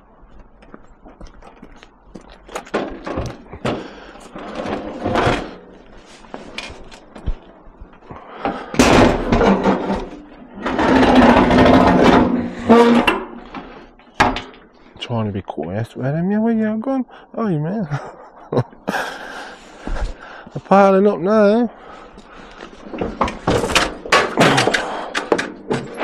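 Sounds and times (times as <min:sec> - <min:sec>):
metal banging: 0:08.4 - 0:14.7
scrap metal knocking and clattering: 0:08.4 - 0:14.7, 0:22.8 - 0:26.0.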